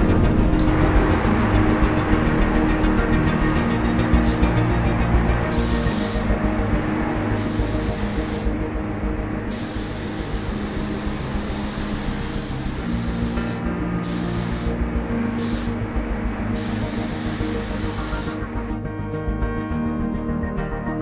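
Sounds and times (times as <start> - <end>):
paint spray gun hissing: 3.5 - 4.6, 5.4 - 6.4, 7.4 - 8.6, 9.5 - 15.8, 16.5 - 18.5.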